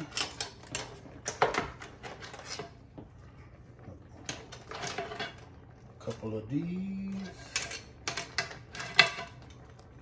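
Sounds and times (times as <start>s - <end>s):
metal spoon clinking against pot: 0.0s - 1.8s, 7.2s - 9.6s.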